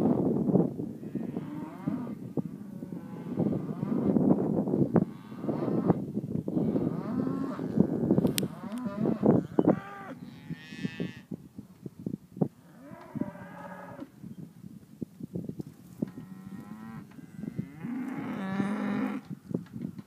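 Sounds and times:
cattle mooing and bawling: 0:16.1 - 0:19.3.

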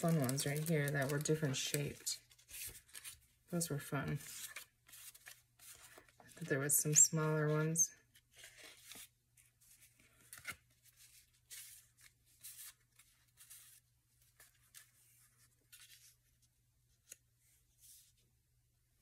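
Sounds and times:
paper pieces rustling: 0:00.0 - 0:03.2.

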